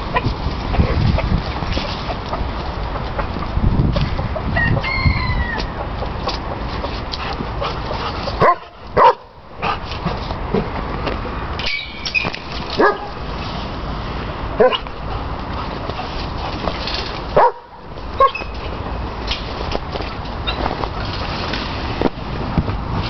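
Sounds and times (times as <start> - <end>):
steady background noise: 0.0 - 23.0
chickens clucking and calling: 0.1 - 8.4.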